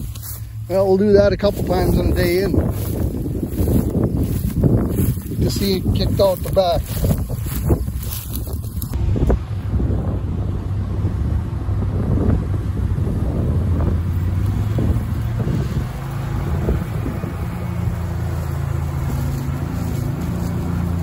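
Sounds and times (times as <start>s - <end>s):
heavy diesel engines running: 0.0s - 21.0s
wind buffeting microphone: 0.0s - 21.0s.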